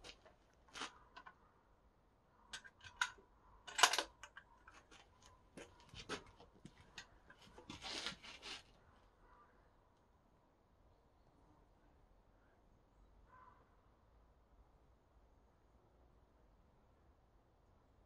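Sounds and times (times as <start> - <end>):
rifle bolt clicks and knocks: 2.5 - 7.4.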